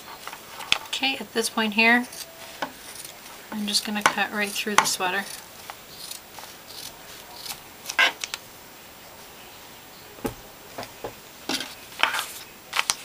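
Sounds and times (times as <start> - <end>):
scissors snipping fabric: 4.0 - 8.0.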